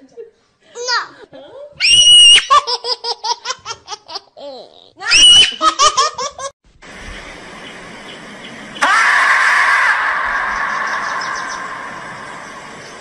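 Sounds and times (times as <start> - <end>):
shrill squeals: 1.8 - 2.5
high-pitched laughter: 2.1 - 6.5
faint steady hiss: 6.7 - 8.8.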